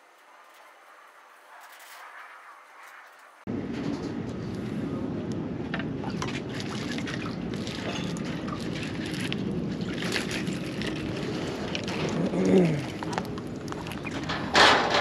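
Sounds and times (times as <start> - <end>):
water lapping: 5.9 - 15.0.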